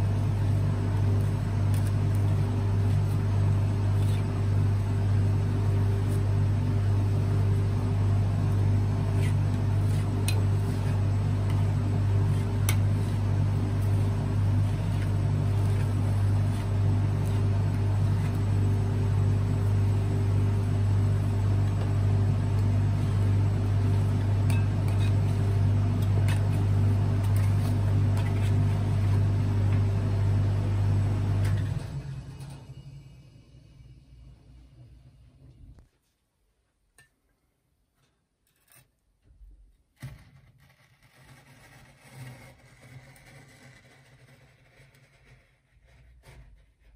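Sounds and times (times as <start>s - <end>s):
refrigeration compressor humming: 0.0s - 35.8s.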